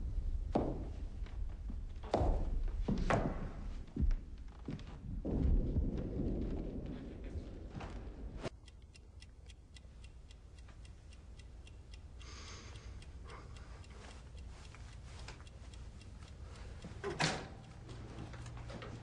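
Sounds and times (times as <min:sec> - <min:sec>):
clock ticking: 0:08.5 - 0:19.0.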